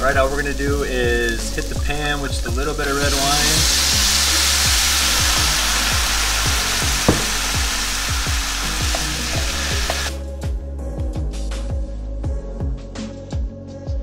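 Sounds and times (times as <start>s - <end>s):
wine sizzling in a hot pan: 0.0s - 10.2s
background music with steady beat: 0.0s - 14.0s
sharp knock: 7.1s - 7.6s.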